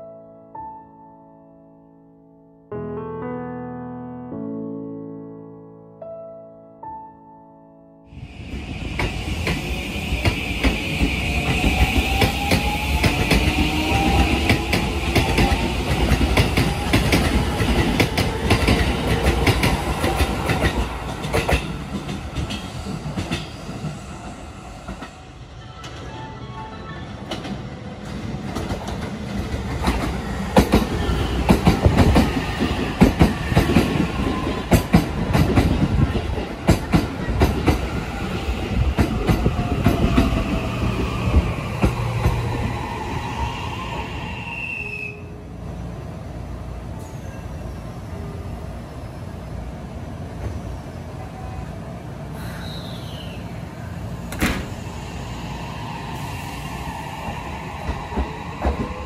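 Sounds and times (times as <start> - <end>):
train wheels clacking: 8.9 - 24.0, 28.5 - 38.1, 57.4 - 59.0
high squeal: 42.2 - 45.3, 52.4 - 53.6.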